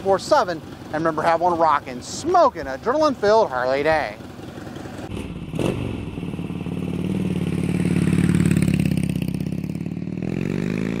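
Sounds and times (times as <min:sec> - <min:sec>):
motorcycle engine revving: 0:03.7 - 0:11.0.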